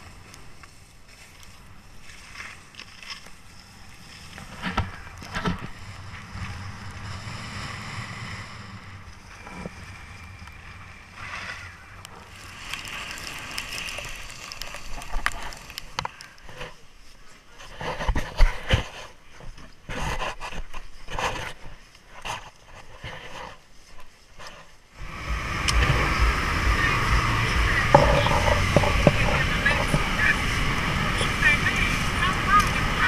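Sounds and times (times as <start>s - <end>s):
skis scraping over snow: 0.0s - 33.0s
wind on microphone: 3.6s - 16.0s, 25.0s - 33.0s.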